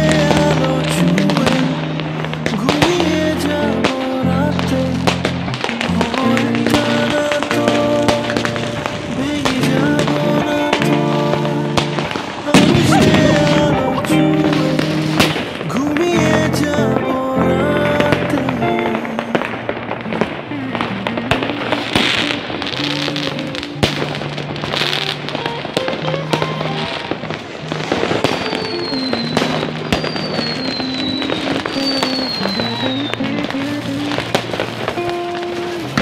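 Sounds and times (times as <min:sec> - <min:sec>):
fireworks bangs and crackling: 0:00.0 - 0:36.0
music playing: 0:00.0 - 0:36.0
firework whistles falling in pitch: 0:27.9 - 0:35.0.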